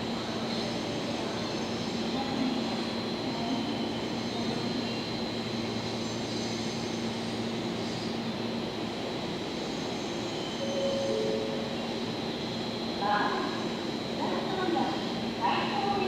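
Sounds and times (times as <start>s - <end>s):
electric train rumbling slowly: 0.0s - 16.0s.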